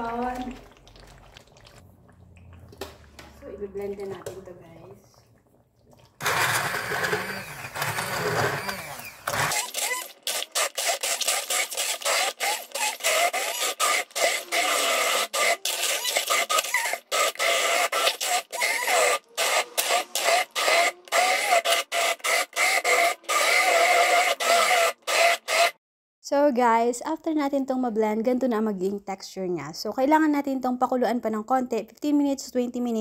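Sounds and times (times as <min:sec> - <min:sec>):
electric blender motor running: 0:06.2 - 0:25.8.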